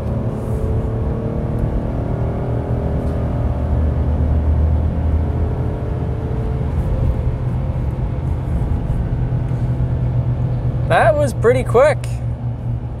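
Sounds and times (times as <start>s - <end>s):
road noise: 0.0s - 13.0s
truck engine at full throttle: 0.0s - 13.0s.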